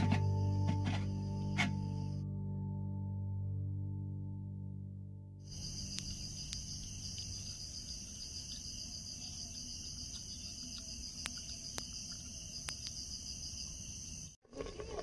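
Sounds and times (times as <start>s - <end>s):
insects chirring: 5.4s - 15.0s.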